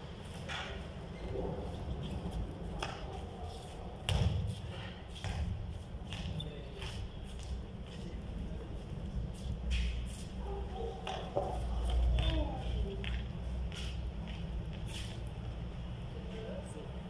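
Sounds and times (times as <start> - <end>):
basketball bouncing on concrete: 4.1 - 4.5, 5.2 - 6.4.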